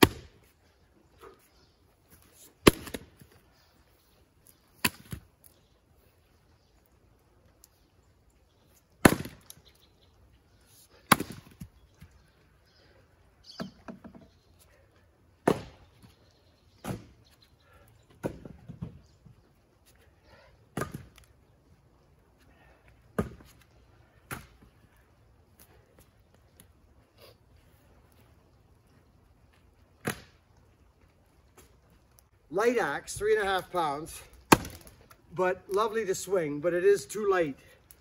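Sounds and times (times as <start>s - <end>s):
axe chopping firewood: 0.0s - 0.5s, 2.6s - 3.3s, 4.8s - 5.3s, 9.0s - 9.6s, 11.0s - 11.7s, 15.4s - 15.9s, 16.8s - 17.3s, 18.2s - 18.9s, 20.7s - 21.3s, 23.2s - 24.7s, 30.0s - 30.4s, 34.5s - 35.1s.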